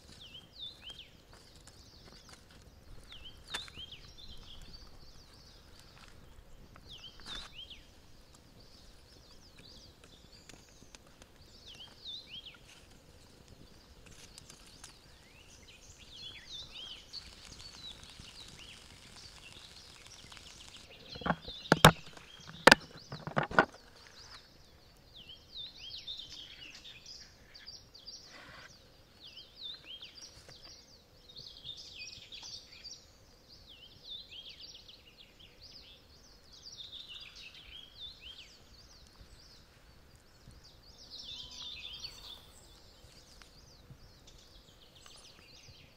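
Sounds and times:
birds singing and chirping: 0.0s - 45.9s
sharp knocks: 21.2s - 23.7s.

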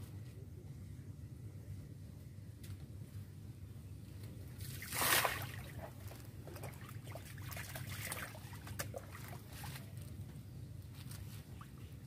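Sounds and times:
water splashing: 4.6s - 9.9s.

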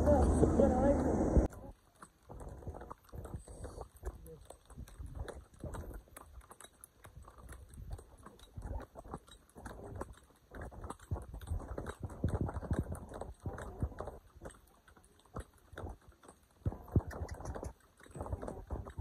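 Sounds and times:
horse hooves clopping: 0.0s - 19.0s.

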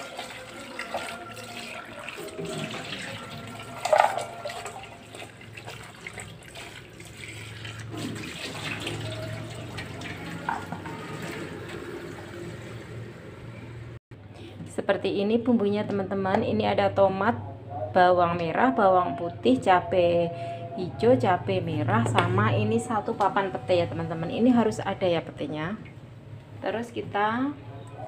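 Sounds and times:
tap water running into sink: 0.0s - 12.8s.

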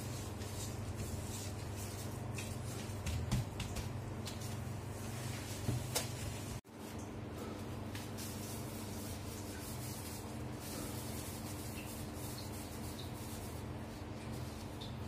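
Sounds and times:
gloved hands rubbing together: 7.8s - 14.8s.

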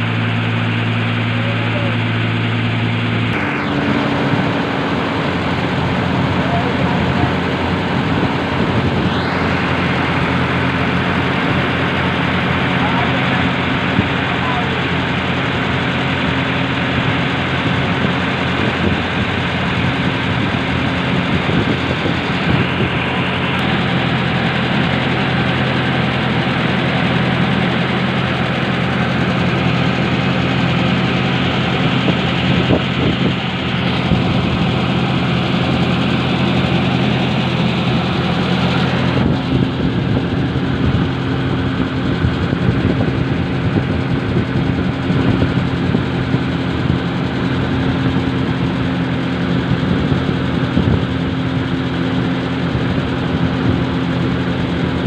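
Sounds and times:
boat engine droning: 0.0s - 55.0s.

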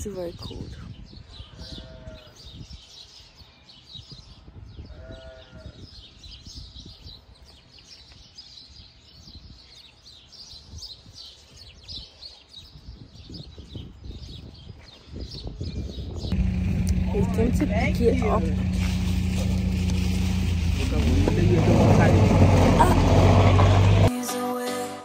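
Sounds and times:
small birds chirping: 0.0s - 22.0s
sheep or goat bleat: 1.5s - 2.4s, 4.9s - 5.8s
steady low rumble: 16.2s - 24.1s.

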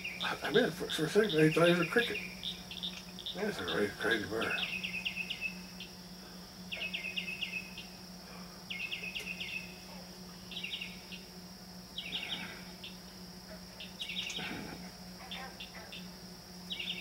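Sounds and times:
steady low hum: 0.0s - 17.0s
bird singing chirping notes: 1.2s - 5.9s, 6.7s - 8.0s, 8.7s - 9.8s, 10.5s - 11.3s, 16.7s - 17.0s.

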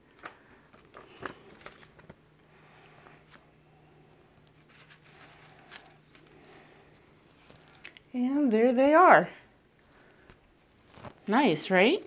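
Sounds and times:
paper rustling: 0.1s - 2.2s, 4.5s - 6.7s, 10.8s - 11.3s.

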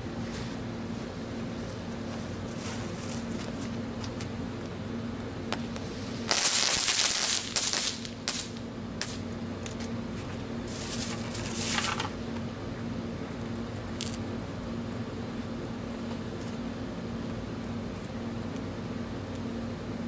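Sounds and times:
firework pops: 5.5s - 9.2s
firework crackling: 5.5s - 9.8s, 10.6s - 11.9s.

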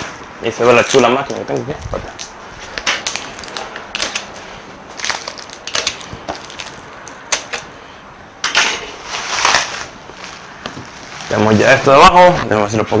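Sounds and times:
plastic wrap and tape ripping: 0.7s - 7.7s, 9.0s - 11.8s.

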